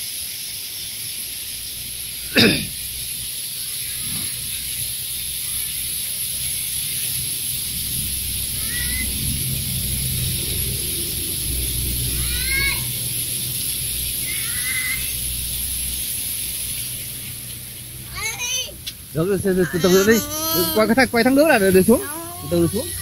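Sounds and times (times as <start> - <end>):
waterfall splashing into pool: 0.0 - 23.0
person shouting: 19.5 - 21.0, 21.9 - 23.0.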